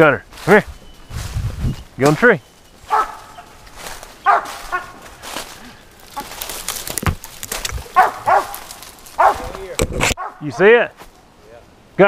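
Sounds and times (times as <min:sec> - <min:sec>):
footsteps crunching dry leaves: 0:00.2 - 0:09.8
dog barking: 0:02.9 - 0:03.5, 0:04.2 - 0:05.0, 0:07.9 - 0:09.6, 0:10.2 - 0:10.6.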